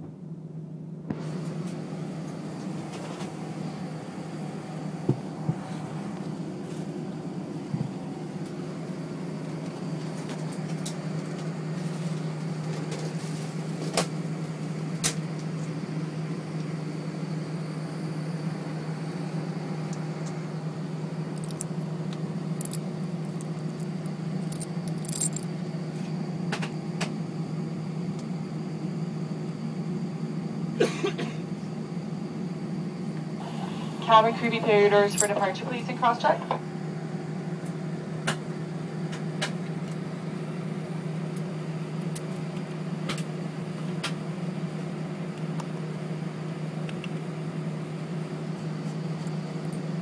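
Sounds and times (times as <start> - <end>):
airliner cabin hum: 0.0 - 50.0
dog tags jingling: 35.1 - 35.4.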